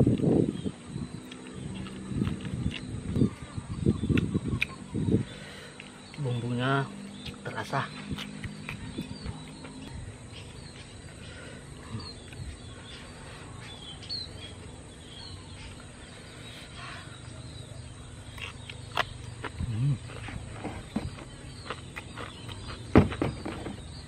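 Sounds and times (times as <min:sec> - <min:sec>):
faint bird chirps: 0:00.5 - 0:24.0
man chewing: 0:01.2 - 0:06.2, 0:07.0 - 0:11.2, 0:11.8 - 0:12.8, 0:18.2 - 0:24.0.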